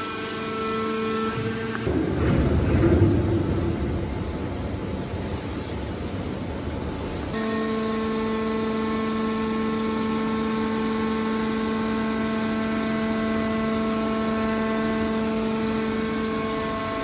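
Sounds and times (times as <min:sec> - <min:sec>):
hydraulic pump motor humming: 0:07.3 - 0:17.0.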